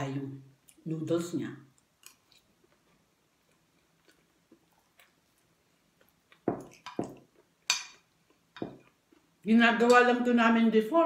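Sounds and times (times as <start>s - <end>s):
quiet chewing: 1.7s - 9.4s.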